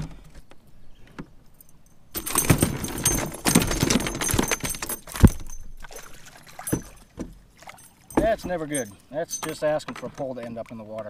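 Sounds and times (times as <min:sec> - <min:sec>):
fish and lure clattering in kayak: 0:01.2 - 0:11.0.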